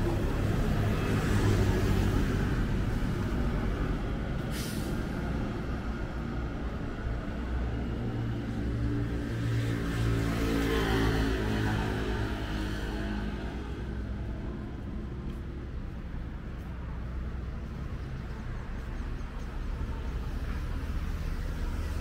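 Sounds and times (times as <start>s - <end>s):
short sharp hiss: 4.5s - 5.0s.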